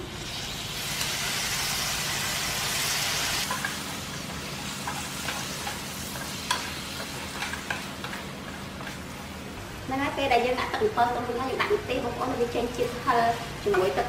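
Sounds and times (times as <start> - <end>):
frying sizzle: 0.0 - 10.4
sauce sizzling in hot pan: 0.1 - 8.2.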